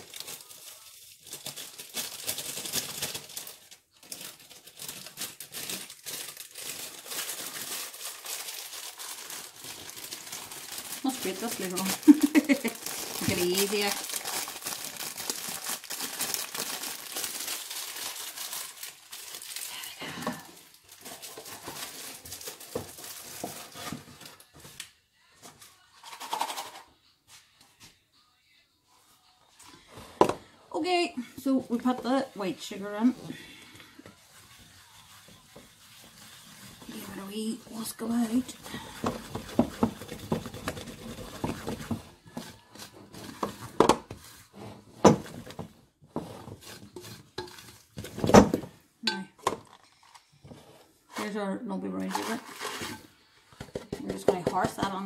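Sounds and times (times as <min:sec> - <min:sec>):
packet rustling: 0:00.0 - 0:24.5, 0:52.0 - 0:53.1
spoon stirring in mixing bowl: 0:34.0 - 0:44.5, 0:46.2 - 0:47.9.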